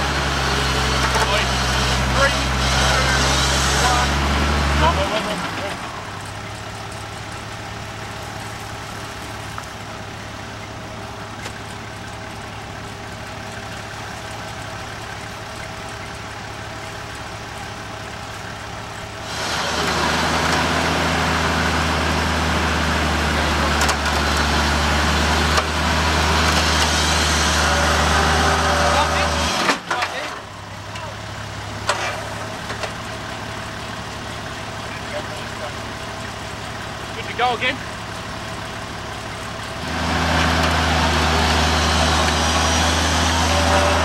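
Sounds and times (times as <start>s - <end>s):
heavier engine hum: 0.0s - 44.0s
engine idling: 4.8s - 44.0s.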